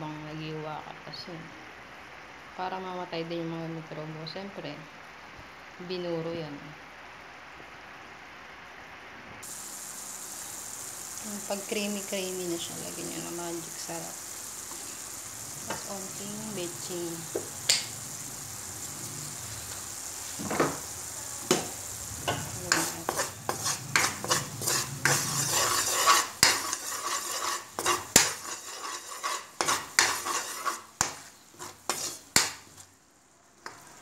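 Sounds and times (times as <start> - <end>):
food sizzling in a pan: 5.1 - 34.0
spatula scraping a pan: 21.5 - 32.9.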